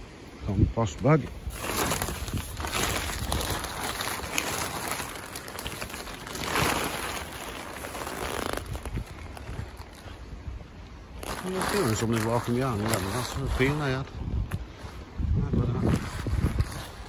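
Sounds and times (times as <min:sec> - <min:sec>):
plastic bag crinkling: 0:01.5 - 0:10.2, 0:11.2 - 0:13.8.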